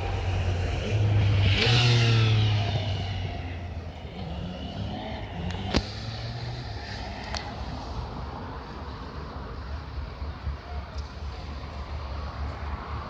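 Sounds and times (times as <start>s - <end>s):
vehicle passing by: 0.0s - 8.6s
steady traffic noise: 0.0s - 13.0s.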